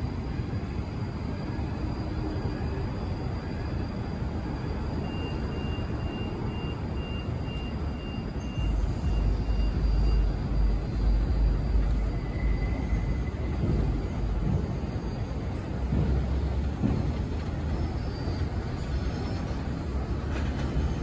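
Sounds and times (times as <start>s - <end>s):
subway train rumble: 0.0s - 21.0s
faint high pulsing tone: 0.7s - 16.2s.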